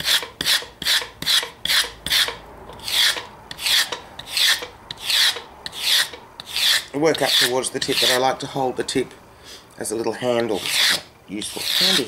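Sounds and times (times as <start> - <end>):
metal pins rasping along leaf: 0.0 - 8.3, 10.2 - 12.0.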